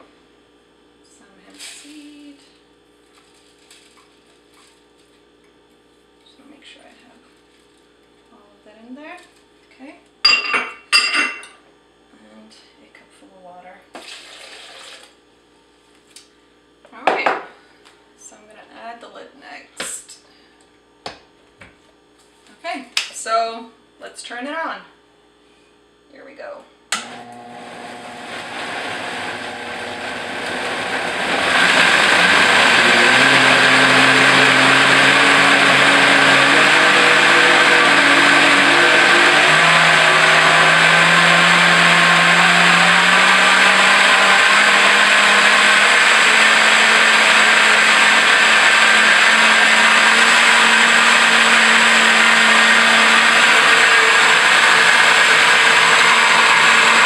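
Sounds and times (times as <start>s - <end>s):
blender motor running: 14.0s - 15.2s, 26.9s - 57.0s
blender switch click: 26.9s - 27.4s.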